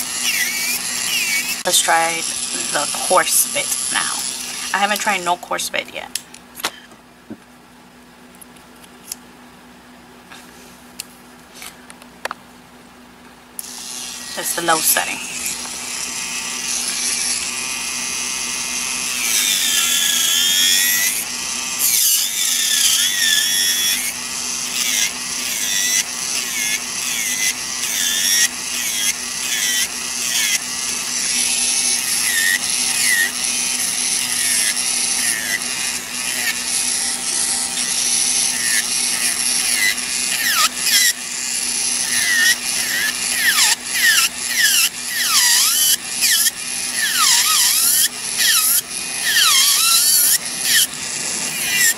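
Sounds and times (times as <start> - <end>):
drill bit squealing: 0.0 - 4.9, 13.6 - 51.9
nail drill motor hum: 0.0 - 5.4, 13.6 - 51.9
gritty grinding on nail: 24.8 - 51.9.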